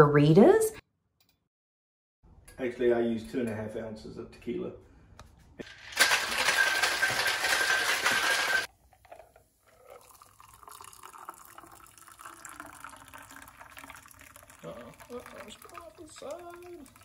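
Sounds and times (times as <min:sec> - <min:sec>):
liquid trickling into glass over ice: 0:09.6 - 0:17.0.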